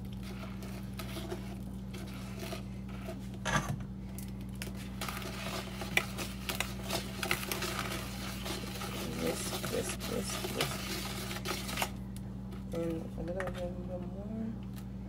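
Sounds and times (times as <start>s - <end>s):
whisk scraping plastic bowl: 0.0s - 3.4s, 4.6s - 12.0s.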